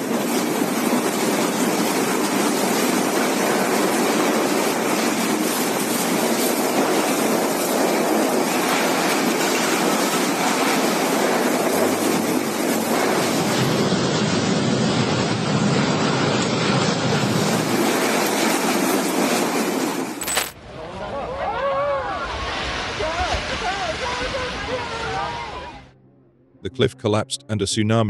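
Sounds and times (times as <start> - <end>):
driving rain: 0.0 - 20.2
strong wind: 0.0 - 25.7.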